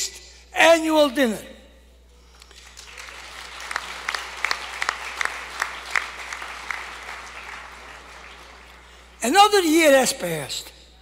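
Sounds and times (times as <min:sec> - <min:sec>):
audience applause: 0:02.6 - 0:09.2.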